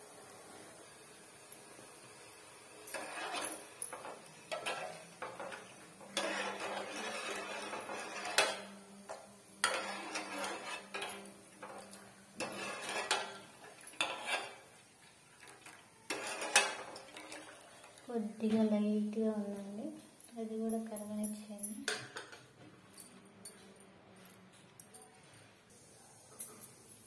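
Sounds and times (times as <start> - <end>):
ladle scraping metal pot: 2.9 - 8.8, 9.6 - 14.7, 15.6 - 17.6.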